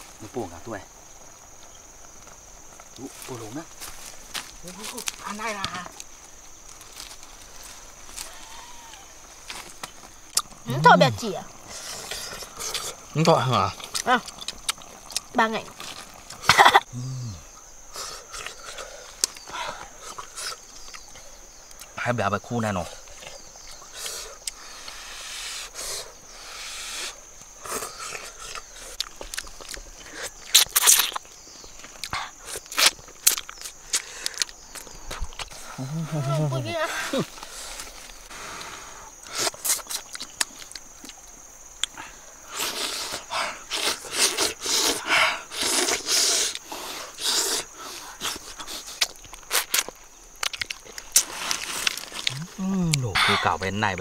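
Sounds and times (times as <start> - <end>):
slurping and chewing: 11.5 - 16.5, 17.9 - 21.1, 27.0 - 31.3, 37.3 - 41.2, 41.8 - 53.3
blowing and slurping on hot food: 42.5 - 49.1
lip smacks and mouth clicks: 48.2 - 51.3.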